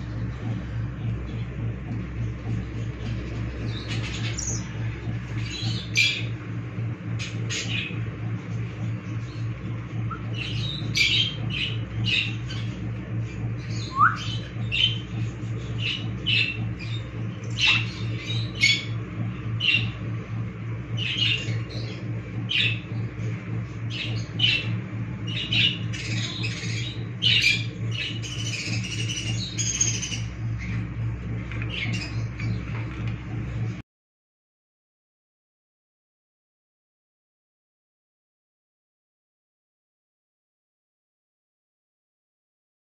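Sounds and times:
low hum: 0.0 - 33.8.

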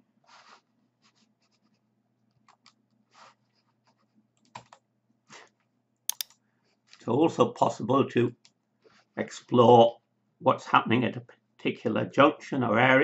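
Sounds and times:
computer mouse clicks: 6.1 - 6.4.

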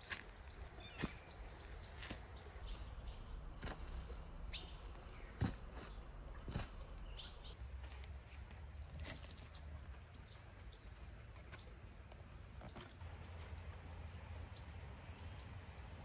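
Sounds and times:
footstep on dry leaves: 0.0 - 2.6, 7.6 - 13.8
low steady rumble: 0.2 - 16.0.

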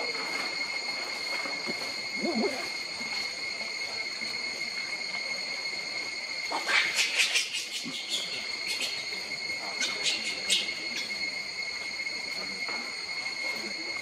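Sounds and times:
high insect chirring: 0.0 - 14.0
high-pitched insect drone: 0.0 - 14.0
low warbling call: 2.2 - 2.8.

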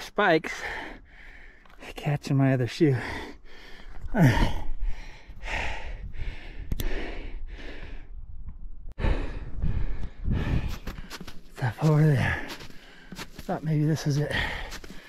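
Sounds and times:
man breathing hard: 0.5 - 1.8, 2.9 - 8.3, 8.9 - 11.2, 14.2 - 15.0.

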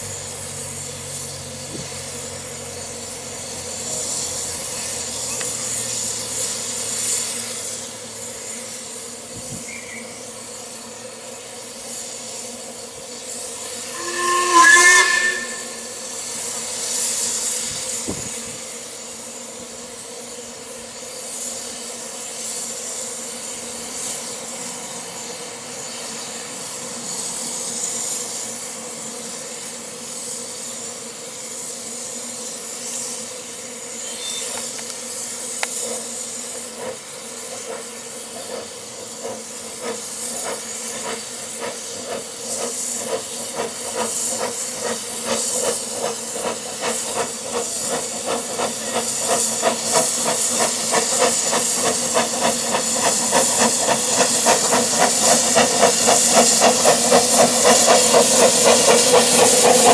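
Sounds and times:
steam locomotive exhaust chuffs: 0.0 - 59.9
steam locomotive hissing: 0.0 - 59.9.

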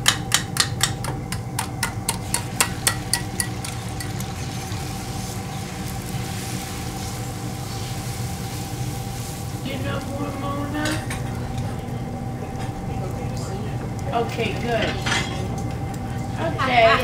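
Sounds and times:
utensil clinking against metal bowl: 0.0 - 4.3
steady hum: 0.0 - 17.0
egg sizzling on griddle: 0.2 - 12.1.

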